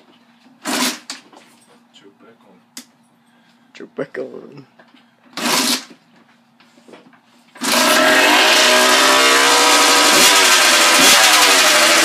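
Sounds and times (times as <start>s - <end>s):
two-stroke motorcycle engine revving: 7.6s - 12.0s.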